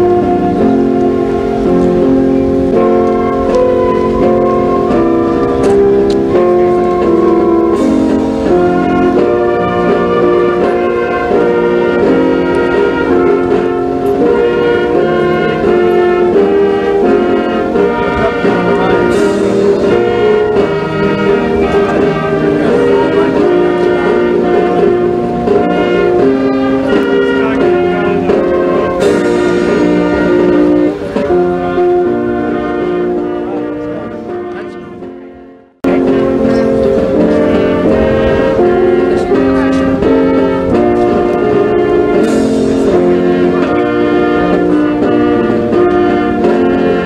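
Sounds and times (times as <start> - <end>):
brass instruments playing chords: 0.0 - 47.0
cymbal crashes: 37.5 - 41.5.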